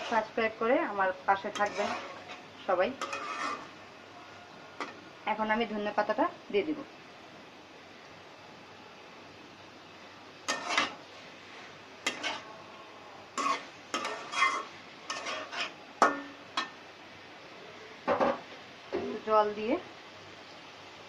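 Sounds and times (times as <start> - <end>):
metal spatula scraping pan: 0.0 - 0.6, 1.3 - 3.8, 10.4 - 12.6, 13.3 - 16.7.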